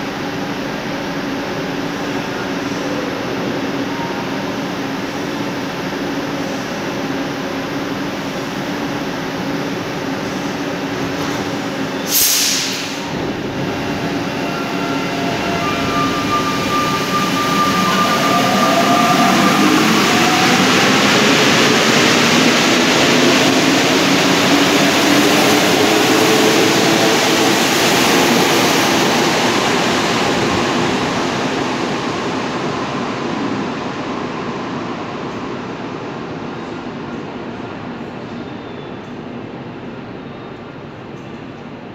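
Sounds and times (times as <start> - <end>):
short sharp hiss: 12.1 - 13.1.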